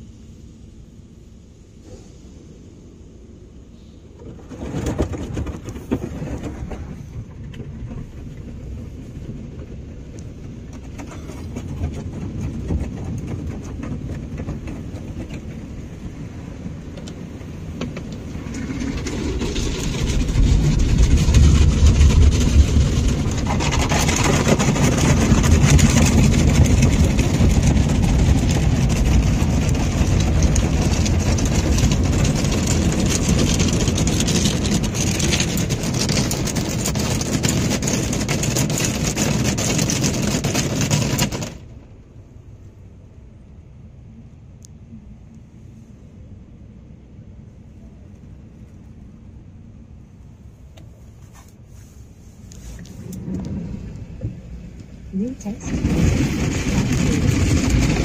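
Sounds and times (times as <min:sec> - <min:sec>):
car wash spray rumbling hiss: 0:00.0 - 0:04.3.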